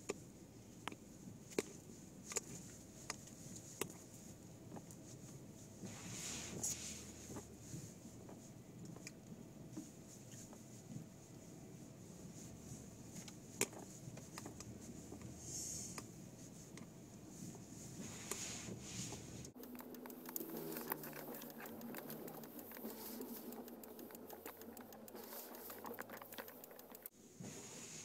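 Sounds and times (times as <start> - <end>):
sleet ticking on a car: 17.5 - 27.1.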